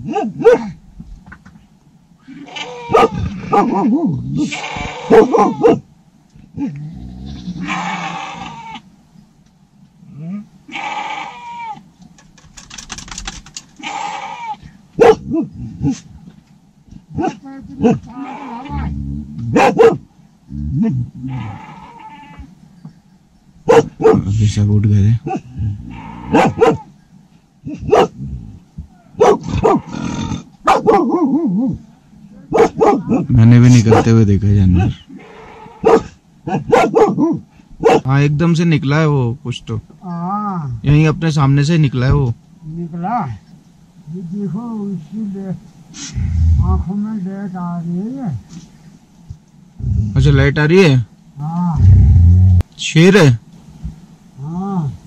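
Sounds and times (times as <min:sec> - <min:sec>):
dog barking: 0:00.0 - 0:00.8, 0:02.9 - 0:03.8, 0:05.1 - 0:05.8, 0:15.0 - 0:15.3, 0:19.5 - 0:20.0, 0:23.6 - 0:24.2, 0:26.3 - 0:26.9, 0:27.7 - 0:28.2, 0:29.2 - 0:29.8, 0:30.6 - 0:31.5, 0:32.5 - 0:33.3, 0:33.9 - 0:34.1, 0:35.8 - 0:38.1
wavering cry: 0:02.2 - 0:05.8, 0:10.7 - 0:11.8, 0:13.8 - 0:14.6, 0:17.2 - 0:19.6, 0:20.8 - 0:22.6
sheep bleating: 0:07.2 - 0:08.8.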